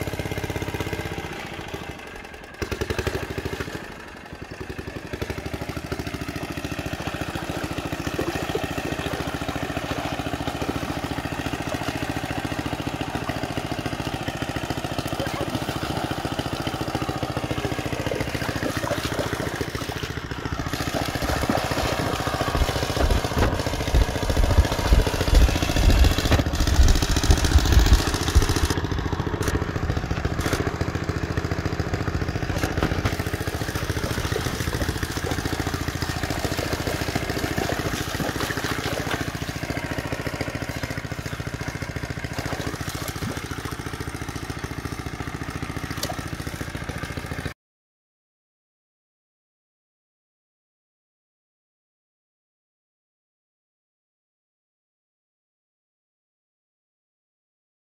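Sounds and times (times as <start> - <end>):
small engine idling: 0.0 - 47.6
water splashing from wading: 2.7 - 47.5.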